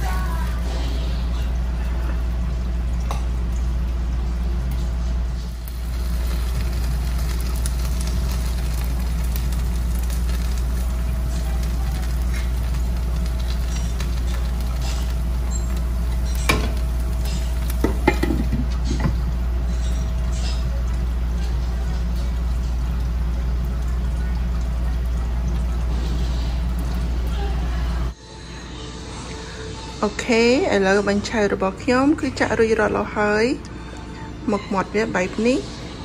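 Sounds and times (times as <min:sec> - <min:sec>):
crepe sizzling in a pan: 0:00.0 - 0:02.3, 0:05.4 - 0:28.2.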